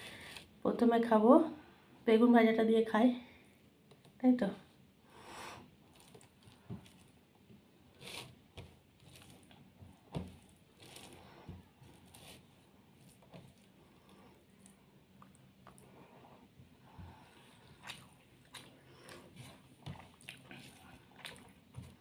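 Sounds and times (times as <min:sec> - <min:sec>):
fingers mixing food squishing: 0:05.8 - 0:22.0.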